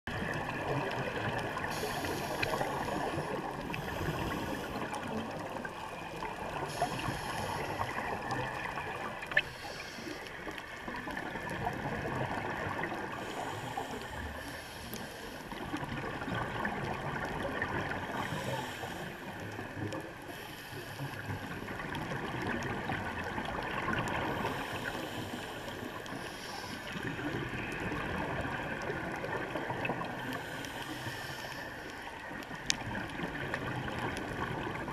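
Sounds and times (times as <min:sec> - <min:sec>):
bubbles gurgling: 0:00.1 - 0:09.7, 0:10.6 - 0:13.3, 0:15.6 - 0:18.5, 0:21.6 - 0:24.8, 0:26.9 - 0:30.4, 0:32.2 - 0:34.9
muffled underwater rushing: 0:00.1 - 0:34.9.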